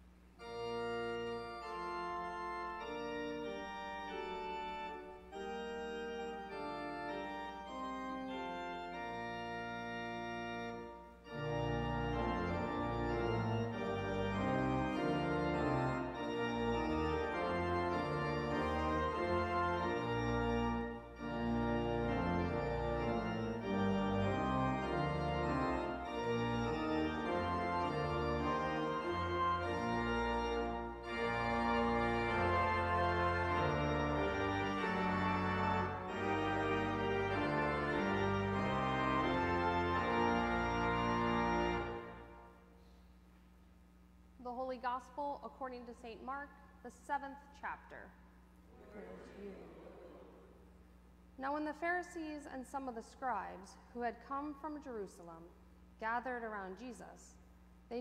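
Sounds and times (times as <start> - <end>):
church organ chords: 0.0 - 43.3.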